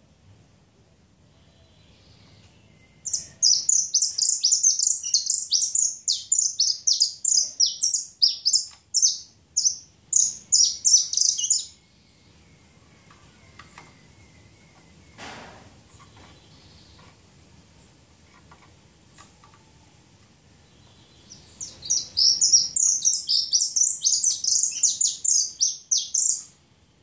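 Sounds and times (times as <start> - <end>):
finch singing buzzy song: 1.5 - 15.3, 20.6 - 26.7.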